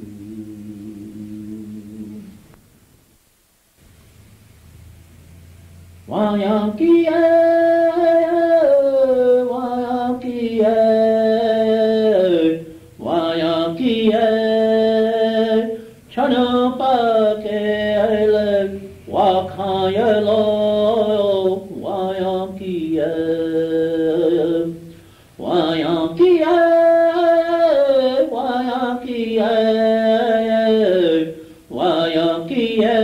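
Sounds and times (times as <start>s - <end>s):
person chanting a song: 0.0s - 2.4s, 6.0s - 33.0s
breath: 15.8s - 16.0s, 24.8s - 25.4s, 31.4s - 31.7s.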